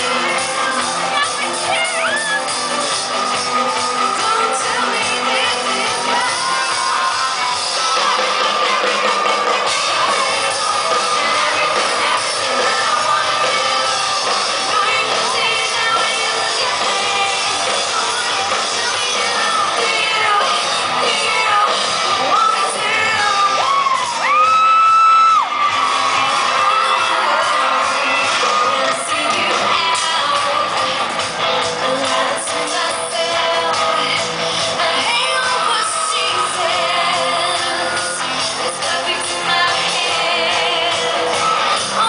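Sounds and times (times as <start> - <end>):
woman singing: 0.0 - 24.6, 26.1 - 31.0, 31.6 - 42.0
crowd of fans: 0.0 - 42.0
live pop-rock band: 0.0 - 42.0
loud scream: 5.4 - 11.6, 23.3 - 29.3.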